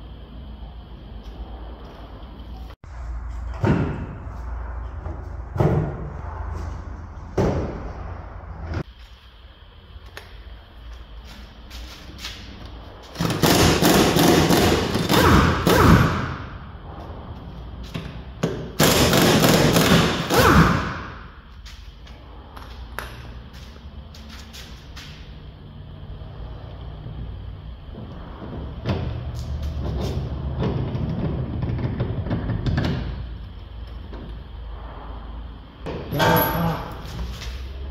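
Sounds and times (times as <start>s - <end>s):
steady low hum: 0.0s - 37.9s
pneumatic impact wrench hammering: 13.1s - 16.5s, 18.4s - 21.2s.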